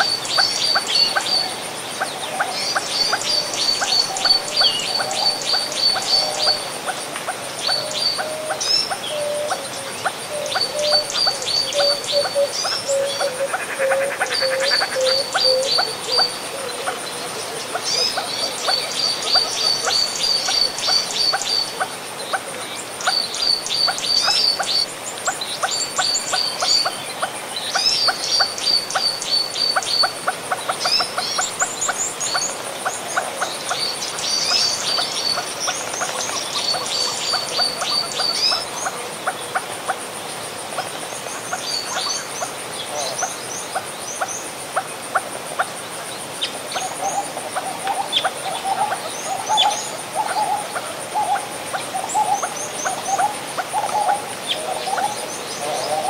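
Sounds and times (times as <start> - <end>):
flowing stream: 0.0 - 56.0
birds chirping and chattering: 7.7 - 39.6, 46.4 - 56.0.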